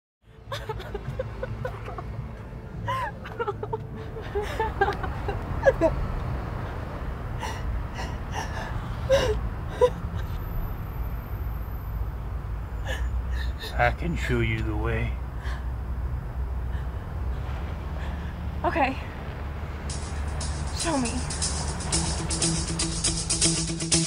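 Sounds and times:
woman sobbing: 0.4s - 2.0s, 2.8s - 5.9s, 7.4s - 10.4s, 12.8s - 14.3s
low rumble: 15.2s - 23.4s.

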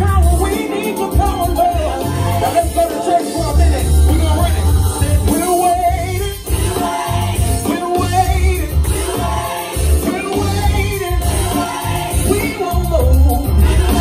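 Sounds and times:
man singing into a microphone: 0.0s - 6.5s, 12.2s - 14.0s
backing music with heavy bass: 0.0s - 14.0s.

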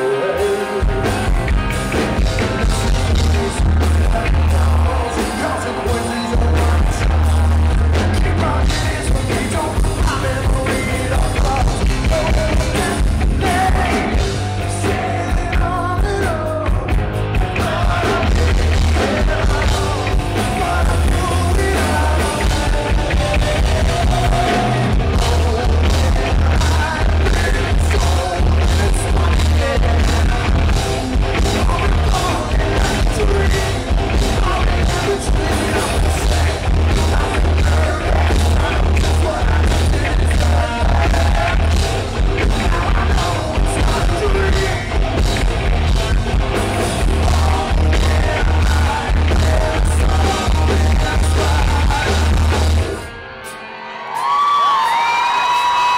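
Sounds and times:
man singing: 0.0s - 53.1s
drums: 0.0s - 55.9s
live rock band playing: 0.0s - 55.9s.

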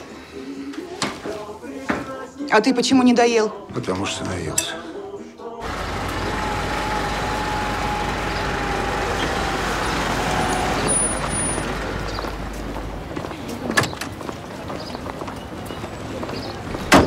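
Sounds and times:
vehicle engine rumble: 5.6s - 17.0s.

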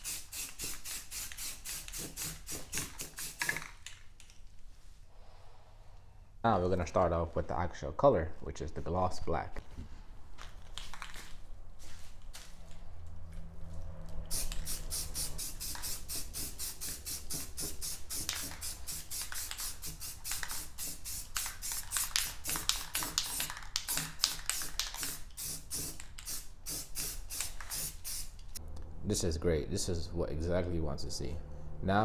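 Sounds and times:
spray paint can hissing in bursts: 0.0s - 3.7s, 14.3s - 28.5s.

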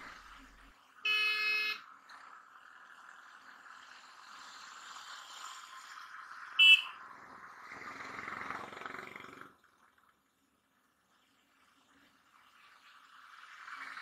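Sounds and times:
vehicle horn toot: 1.1s - 1.8s, 6.6s - 7.0s.

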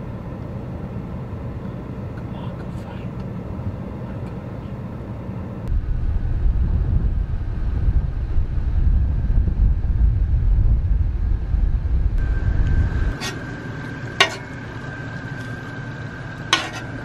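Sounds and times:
wind buffeting microphone: 4.8s - 15.1s
steady high tone: 12.2s - 17.0s.

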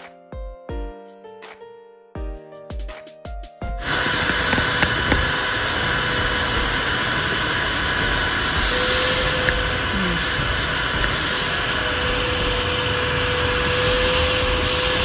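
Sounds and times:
background music with a beat: 0.0s - 5.3s
shop vacuum running: 3.8s - 15.0s.

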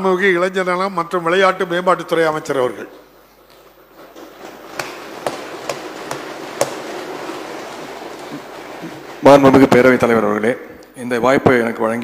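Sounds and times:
room noise of chamber: 0.0s - 12.0s
sharp knocks: 4.2s - 9.9s.

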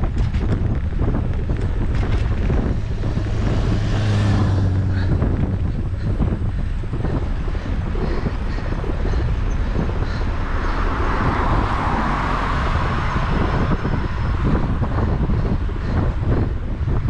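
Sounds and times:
wind buffeting microphone: 0.0s - 17.0s
car passing: 1.0s - 17.0s.

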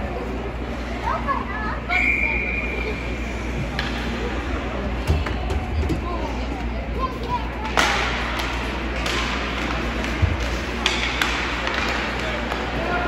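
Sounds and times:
hockey stick cracking on puck: 7.6s - 12.8s.

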